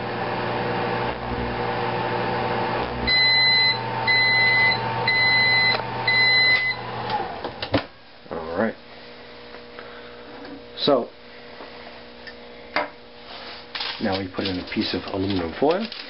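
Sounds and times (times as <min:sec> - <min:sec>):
microwave oven humming: 0:00.0 - 0:16.0
microwave beeps: 0:03.0 - 0:07.0.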